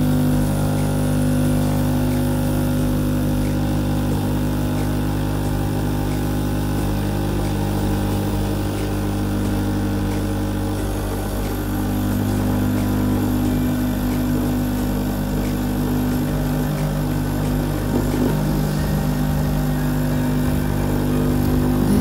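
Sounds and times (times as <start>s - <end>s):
coffee machine pump humming: 0.0s - 22.0s.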